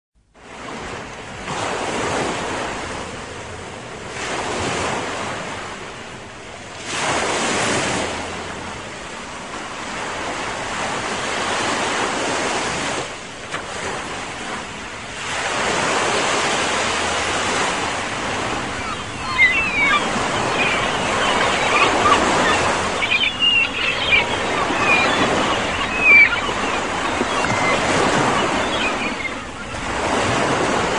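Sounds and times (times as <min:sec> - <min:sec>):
sea waves breaking ashore: 0:00.4 - 0:30.9.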